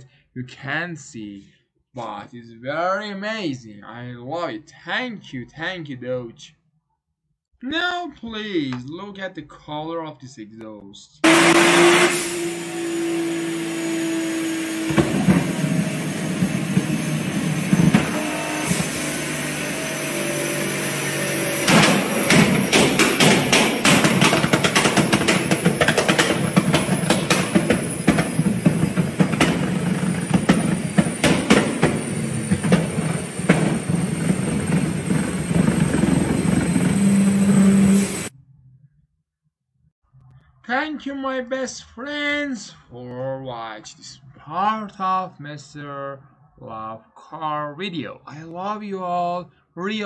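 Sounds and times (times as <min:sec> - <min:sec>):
car engine on dyno: 0:11.2 - 0:38.3
exhaust crackles and pops: 0:14.6 - 0:19.0, 0:21.6 - 0:38.3.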